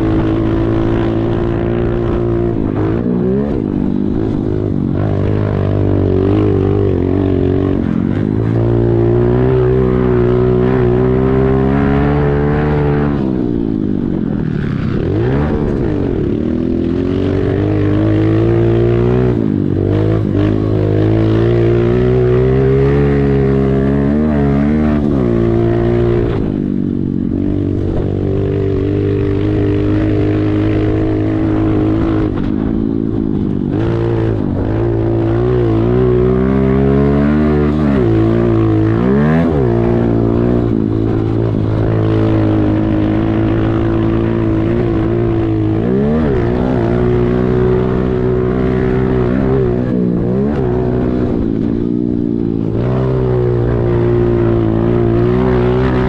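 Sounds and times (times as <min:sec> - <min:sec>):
motorbike engine revving: 0:00.0 - 0:56.0.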